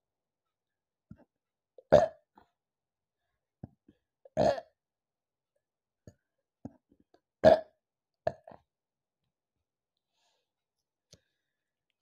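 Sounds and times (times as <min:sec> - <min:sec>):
woman burping: 0:04.4 - 0:04.7, 0:07.4 - 0:08.5.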